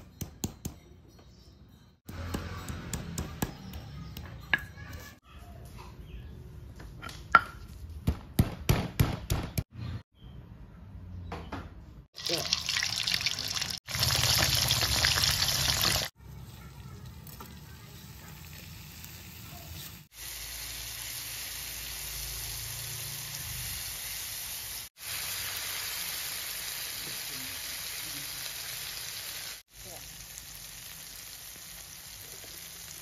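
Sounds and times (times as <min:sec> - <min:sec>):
hot oil sizzling and crackling: 0:12.2 - 0:33.0.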